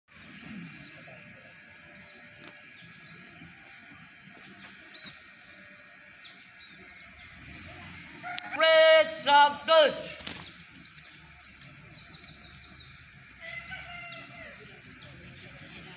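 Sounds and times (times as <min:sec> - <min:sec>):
bird chirps: 0:01.9 - 0:07.9, 0:10.3 - 0:15.6
loud voice: 0:08.5 - 0:10.2.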